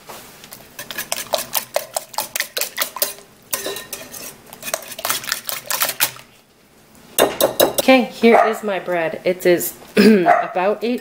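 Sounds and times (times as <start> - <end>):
whisk clicking against a bowl: 0.8 - 3.6, 4.6 - 6.2.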